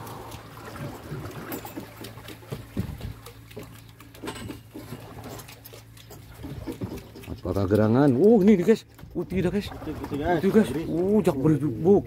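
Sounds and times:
low steady hum: 0.0s - 12.0s
water trickling and splashing: 0.0s - 12.0s.

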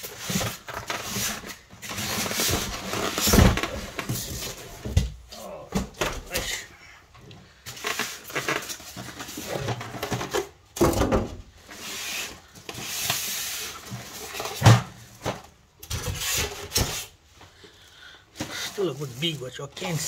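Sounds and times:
plastic rubbing cardboard: 0.0s - 4.6s
plastic bag crinkling: 18.4s - 20.0s.

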